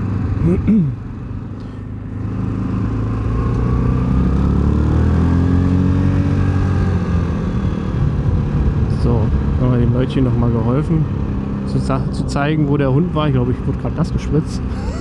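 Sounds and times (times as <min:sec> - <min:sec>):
quad engine accelerating: 0:00.0 - 0:08.8, 0:14.4 - 0:15.0.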